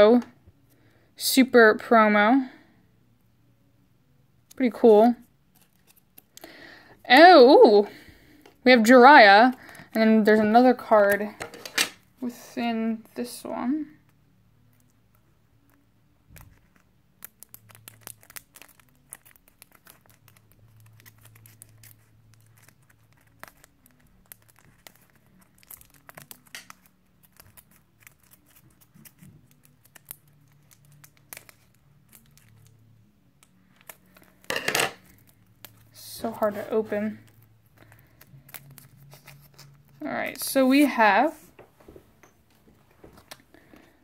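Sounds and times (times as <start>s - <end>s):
crinkly wrapping torn open: 5.5s - 6.4s, 15.6s - 36.1s, 37.2s - 40.0s.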